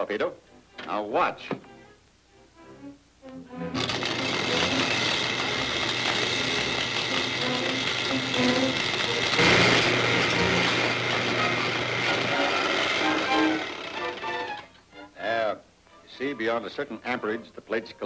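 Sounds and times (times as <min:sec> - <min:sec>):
electrical discharge crackling buzz: 0:03.7 - 0:14.3.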